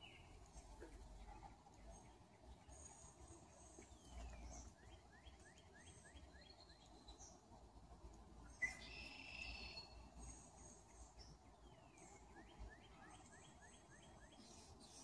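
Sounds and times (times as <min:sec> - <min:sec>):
distant bird calls: 0:08.4 - 0:15.0.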